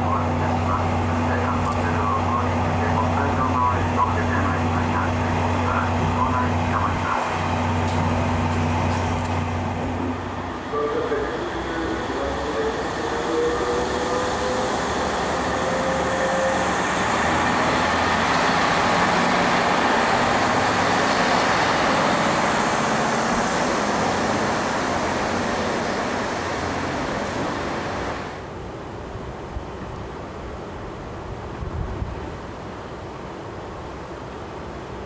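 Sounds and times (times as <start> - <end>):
train rumbling past: 0.0 - 30.8.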